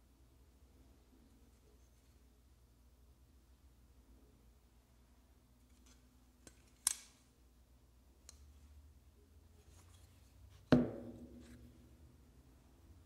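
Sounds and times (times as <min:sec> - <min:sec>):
knife knocking on hard surface: 0:10.7 - 0:11.3.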